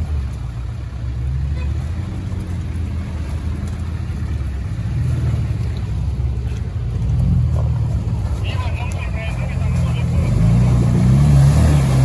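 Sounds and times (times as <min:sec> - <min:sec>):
vehicle engine running at low revs: 0:00.0 - 0:12.0.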